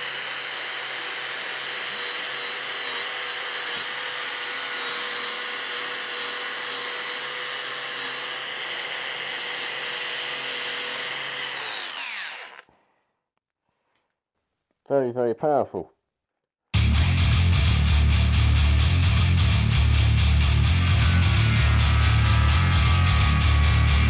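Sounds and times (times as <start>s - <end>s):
angle grinder grinding steel: 0.0s - 12.7s, 20.4s - 24.0s.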